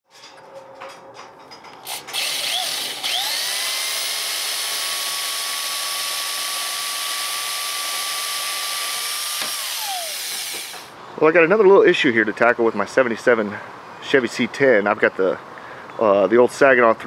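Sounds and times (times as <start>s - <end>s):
drill bit cutting metal: 1.9s - 10.9s
electric drill whining: 1.9s - 10.9s.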